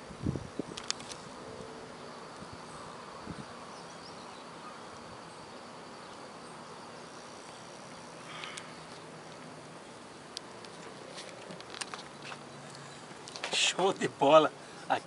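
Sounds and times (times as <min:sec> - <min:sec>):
even hiss: 0:00.0 - 0:15.0
thin high insect-like hum: 0:00.0 - 0:15.0
brief rustle: 0:00.7 - 0:01.3.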